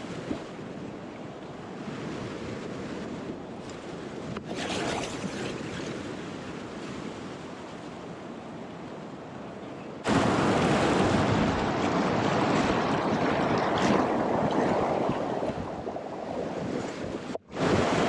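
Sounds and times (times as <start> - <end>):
whitewater rushing: 10.0 - 16.2.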